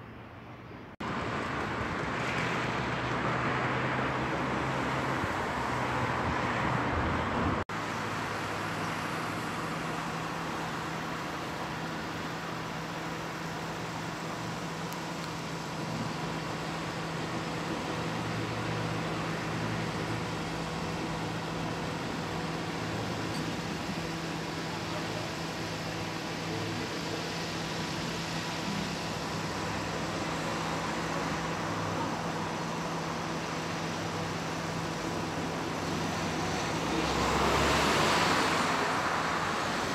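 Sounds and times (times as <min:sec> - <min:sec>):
road traffic: 0:00.0 - 0:39.9
vehicle passing close: 0:35.8 - 0:39.9.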